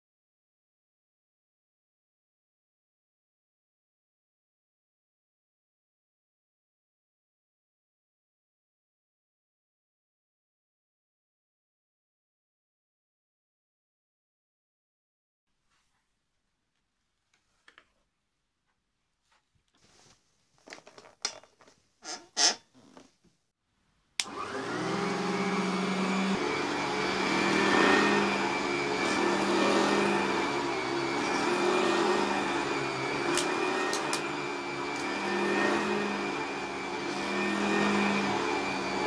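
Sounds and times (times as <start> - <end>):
vacuum cleaner motor whining: 24.2 - 39.0.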